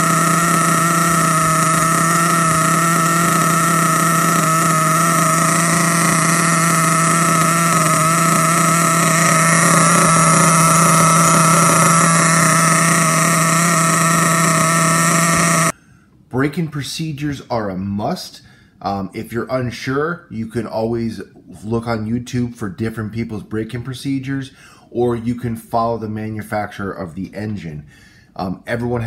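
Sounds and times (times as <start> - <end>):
small nitro engine idling: 0.0 - 15.8.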